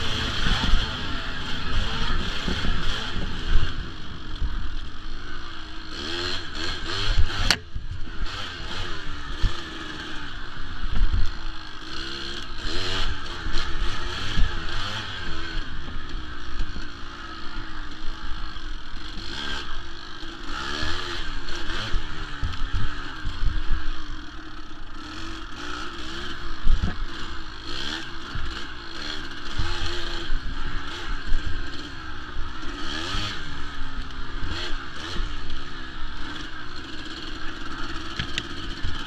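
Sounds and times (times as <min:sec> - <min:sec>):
dirt bike engine revving: 0:00.0 - 0:39.0.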